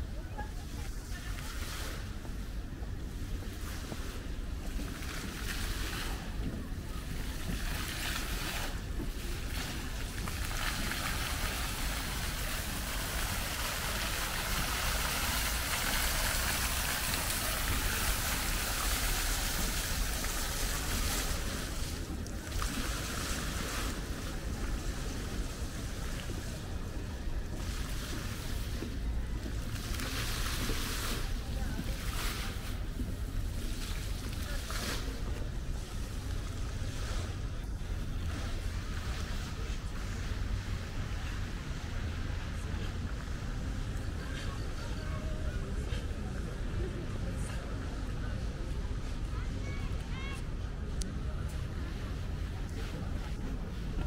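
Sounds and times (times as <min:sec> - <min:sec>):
water splashing and running: 0:03.4 - 0:44.8.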